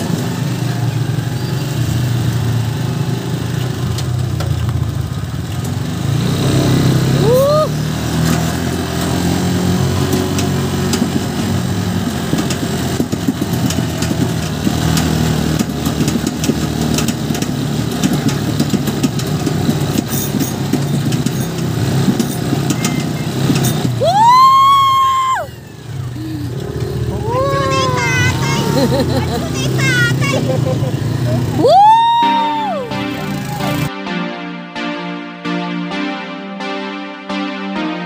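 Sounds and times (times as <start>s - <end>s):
motorcycle engine running: 0.0s - 33.9s
long high shout: 7.2s - 7.8s, 24.0s - 25.7s, 27.1s - 30.5s, 31.6s - 32.9s.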